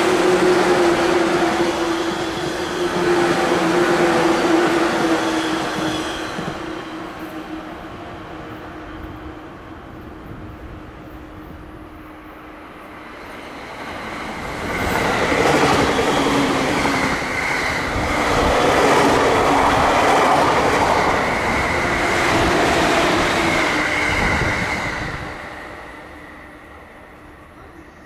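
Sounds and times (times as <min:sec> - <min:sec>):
train wheels rumbling: 0:00.0 - 0:26.9
electric train whine: 0:00.0 - 0:28.0.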